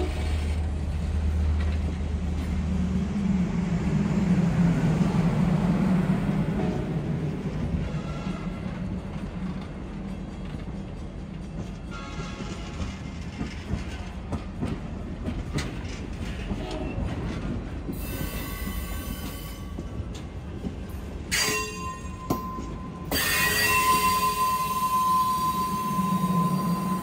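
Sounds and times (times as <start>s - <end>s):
train wheels clicking over rail joints: 0.0s - 2.7s, 7.5s - 27.0s
train wheels squealing: 7.7s - 20.2s, 20.9s - 27.0s.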